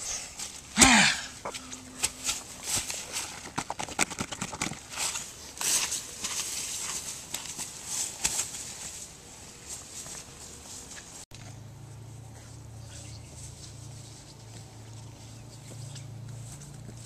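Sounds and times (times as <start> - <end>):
rustling close to microphone: 1.6 - 11.5.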